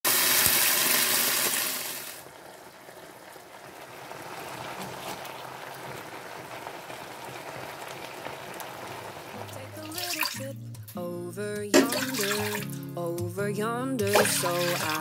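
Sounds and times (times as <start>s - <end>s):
meat sizzling in a pan: 0.1s - 10.4s, 14.1s - 15.0s.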